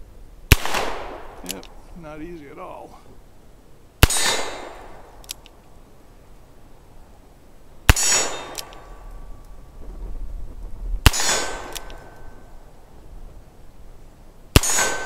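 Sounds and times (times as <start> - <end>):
revolver gunshots: 0.5 - 1.6, 4.0 - 5.2, 7.9 - 9.0, 11.0 - 12.5, 14.5 - 15.0.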